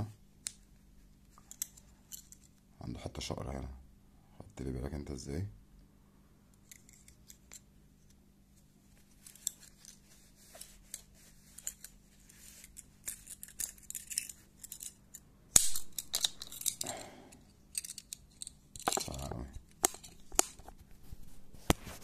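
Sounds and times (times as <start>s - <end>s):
folding knife snap: 15.5s - 16.8s.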